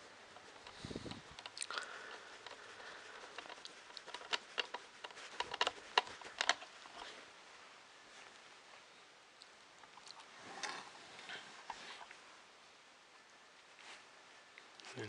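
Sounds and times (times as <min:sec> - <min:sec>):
soft rustle: 0:00.0 - 0:15.0
small clicks and taps of parts: 0:00.4 - 0:02.6, 0:03.3 - 0:07.1.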